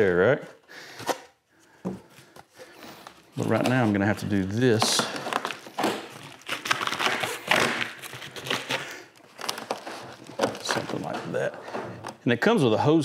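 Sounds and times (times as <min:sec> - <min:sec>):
duct hose crinkling: 0:02.2 - 0:12.4.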